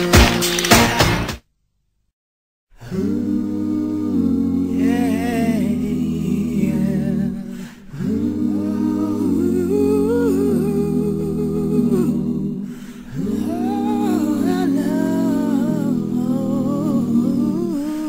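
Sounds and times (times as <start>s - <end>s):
wordless humming vocals: 2.8s - 18.0s.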